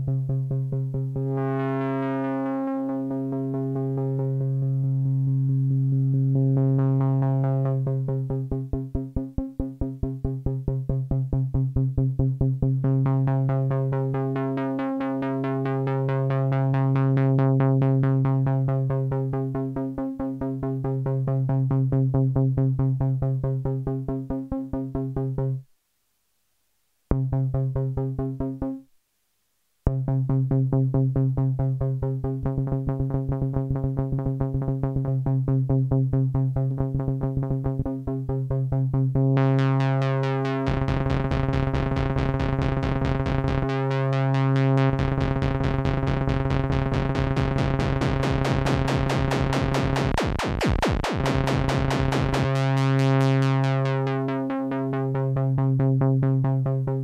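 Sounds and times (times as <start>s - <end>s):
pulsing low synthesizer note: 29.9s - 57.0s.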